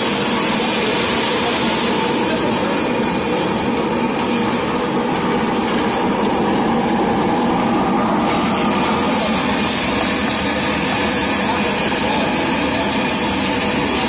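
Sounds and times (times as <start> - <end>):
popcorn machine blower running: 0.0 - 14.0.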